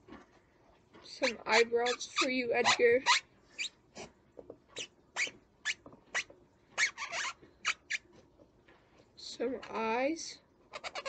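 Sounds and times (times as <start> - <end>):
marker squeaking on balloon: 1.1 - 3.7, 4.8 - 8.1, 10.7 - 11.0.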